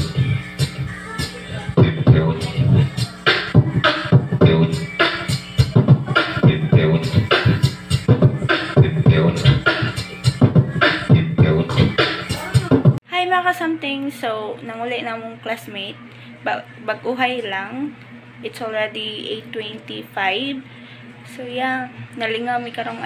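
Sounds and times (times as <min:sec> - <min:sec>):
person beatboxing: 0:00.0 - 0:13.0.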